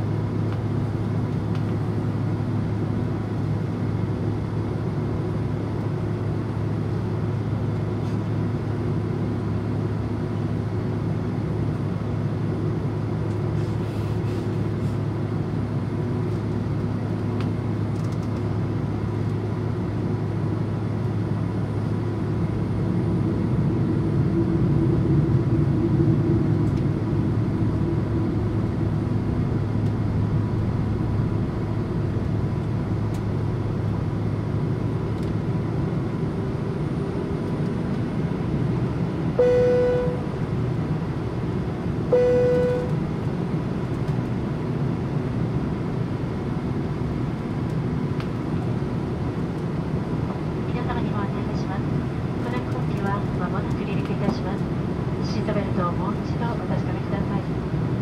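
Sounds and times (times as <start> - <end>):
aircraft cabin drone: 0.0 - 58.0
short clear tone: 39.4 - 40.3, 42.1 - 42.9.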